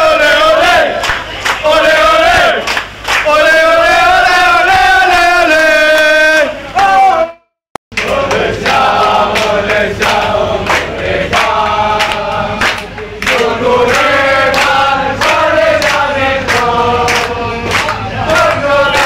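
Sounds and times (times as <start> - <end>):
crowd of men chanting: 0.0 - 7.4, 8.0 - 19.0
hand claps: 1.0 - 1.7, 2.3 - 3.4, 7.9 - 19.0.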